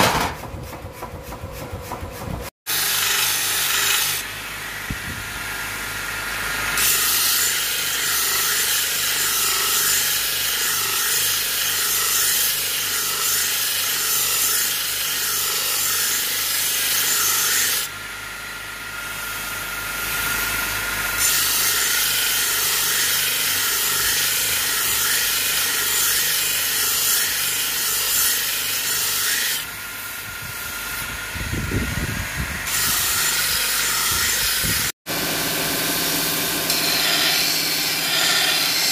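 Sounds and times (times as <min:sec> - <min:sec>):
belt grinder motor hum: 0:31.1 - 0:38.9.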